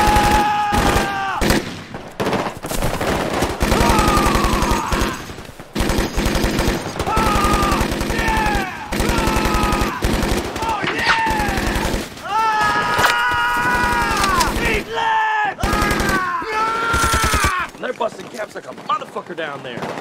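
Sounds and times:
men yelling: 0.0 - 1.4, 3.7 - 5.3, 7.0 - 17.8
automatic gunfire: 0.0 - 12.2, 13.6 - 14.9, 15.6 - 17.6.

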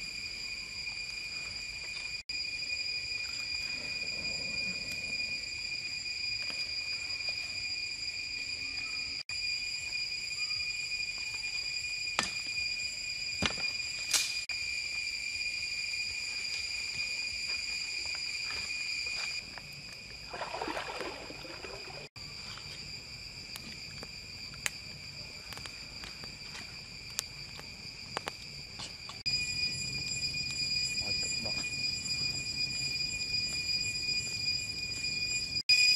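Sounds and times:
insect chorus: 0.0 - 35.9
campfire crackling: 19.4 - 31.0.

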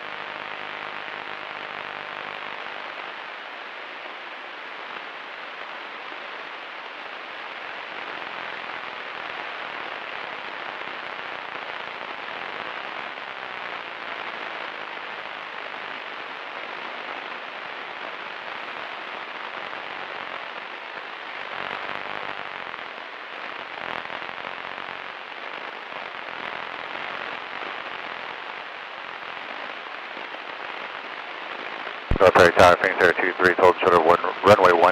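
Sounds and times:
aircraft cabin engine and airflow hiss: 31.2 - 34.9.

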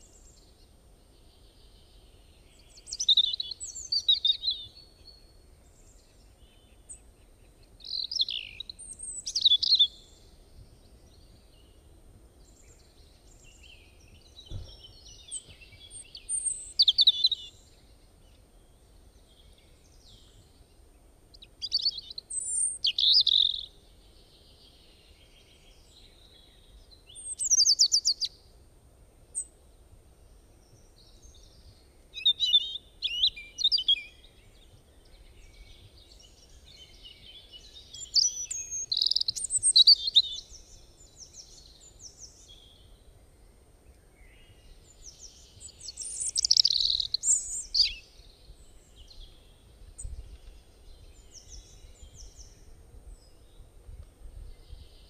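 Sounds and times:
faint low hiss: 0.0 - 55.0
songbirds chirping and trilling: 0.0 - 55.0.

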